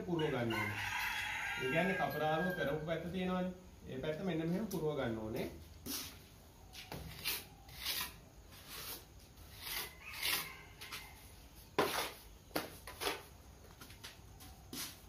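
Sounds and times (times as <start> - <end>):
trowel scraping mortar: 6.8 - 11.2, 11.8 - 13.4.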